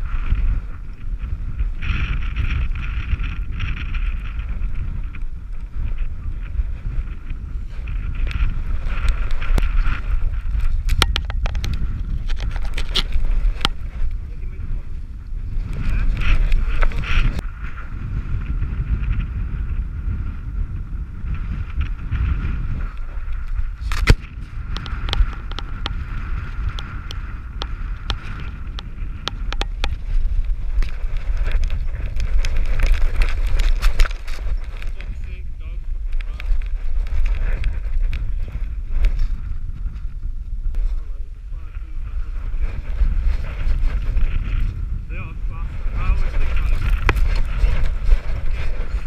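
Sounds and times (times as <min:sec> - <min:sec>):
wind buffeting microphone: 0:00.0 - 0:49.0
sharp clicks and crunches: 0:08.2 - 0:14.2, 0:22.9 - 0:35.3, 0:46.2 - 0:49.0.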